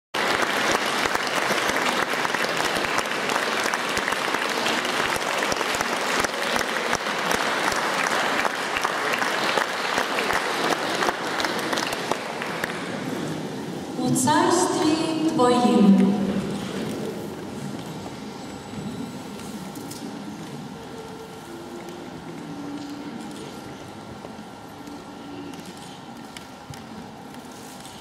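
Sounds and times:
audience applauding: 0.2s - 13.6s.

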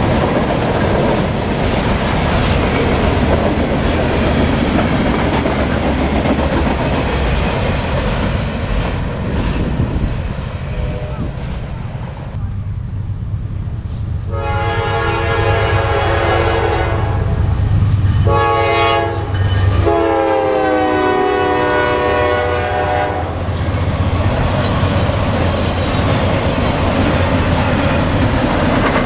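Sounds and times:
train wheels clacking on rails: 0.0s - 10.6s, 23.3s - 29.0s
locomotive air horn blasts: 14.3s - 17.4s, 18.2s - 23.4s.

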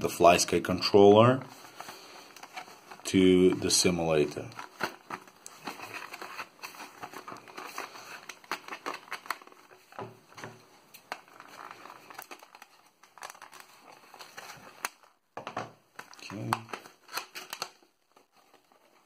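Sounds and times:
plastic packaging crinkling: 0.9s - 15.2s, 15.8s - 19.0s.

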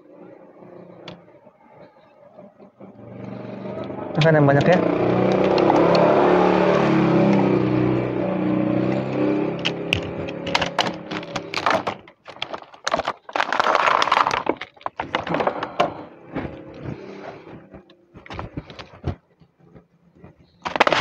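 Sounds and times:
crackling and crunching clicks: 0.6s - 21.0s
vehicle engine passing: 2.8s - 11.6s.

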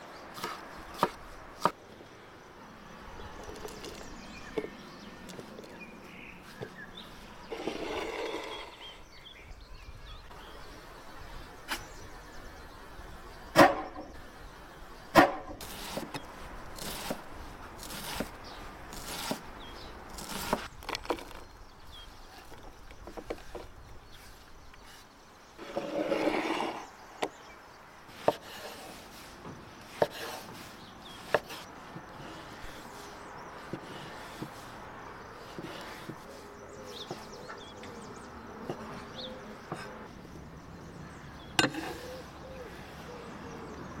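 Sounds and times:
knife chopping on wooden board: 0.4s - 1.8s
scrape of food slid off board: 7.5s - 8.8s, 25.6s - 26.9s.

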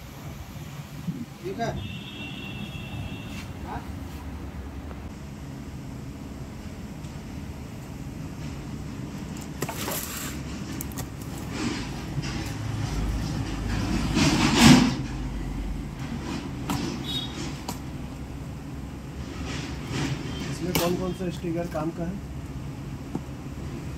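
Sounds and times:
cardboard and tape rustling: 9.2s - 15.0s.

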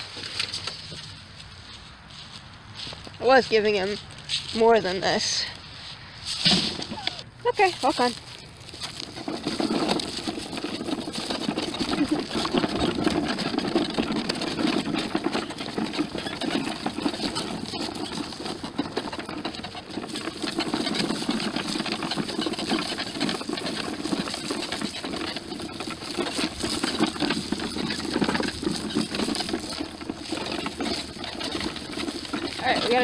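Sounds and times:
wagon rattling over dry leaves: 0.0s - 33.0s.

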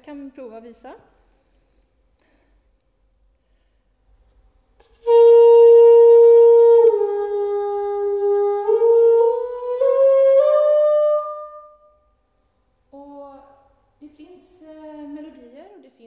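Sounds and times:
wooden horn notes: 4.8s - 12.1s.

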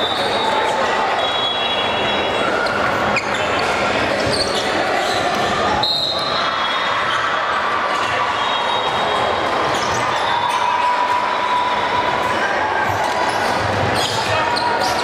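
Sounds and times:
shoe squeaks: 0.0s - 6.8s, 13.3s - 15.0s
many voices echoing: 0.0s - 15.0s.

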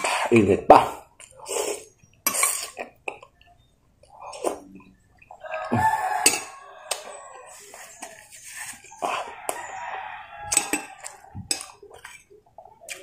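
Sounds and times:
rooster crowing: 5.4s - 8.2s, 9.0s - 11.8s.

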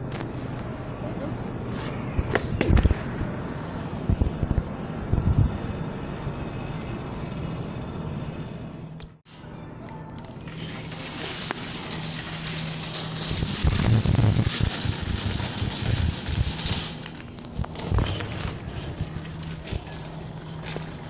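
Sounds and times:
steady low hum: 0.0s - 21.0s
shopping cart rattling: 10.2s - 21.0s.

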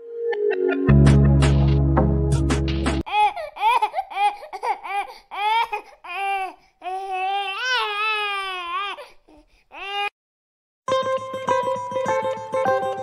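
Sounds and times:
high-pitched crying voice: 3.1s - 9.1s.

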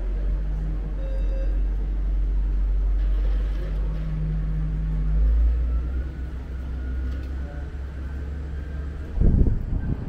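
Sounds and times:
engine running low rumble: 0.0s - 10.0s.

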